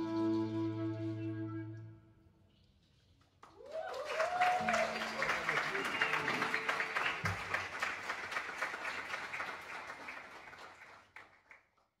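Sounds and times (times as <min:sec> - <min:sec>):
audience applauding: 0:03.4 - 0:11.8.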